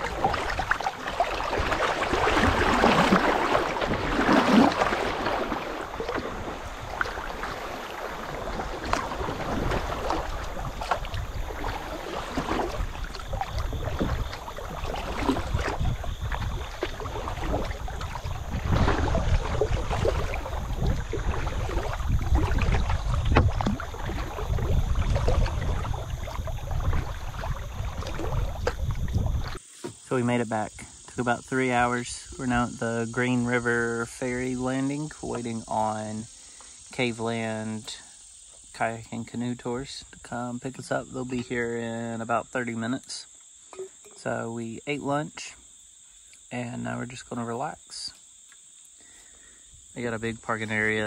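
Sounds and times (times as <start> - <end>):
wind rumble on microphone: 0.0 - 29.6
river water splashing on hull: 0.0 - 51.0.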